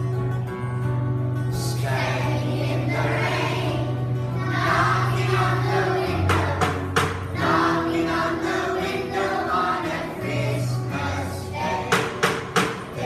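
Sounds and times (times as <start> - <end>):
acoustic guitar: 0.0 - 13.0
children's choir singing: 1.5 - 13.0
sharp taps or claps: 6.2 - 7.4, 11.9 - 13.0.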